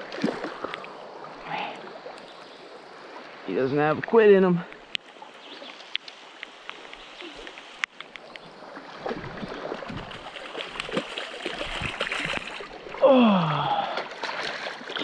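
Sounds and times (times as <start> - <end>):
stream water running: 0.0 - 15.0
fish splashing in water: 8.6 - 13.0, 13.7 - 15.0
person exclaiming: 13.0 - 14.0.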